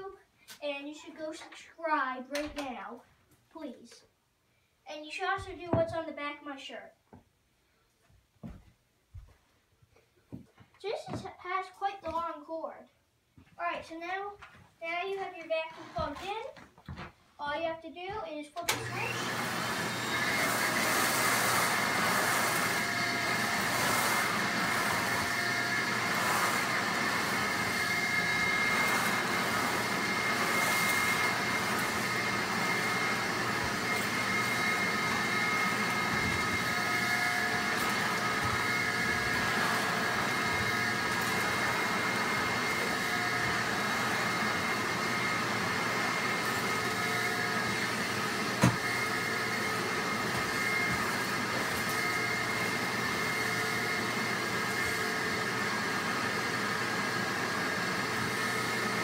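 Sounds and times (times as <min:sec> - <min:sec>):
vacuum cleaner whining: 0:18.7 - 0:59.0.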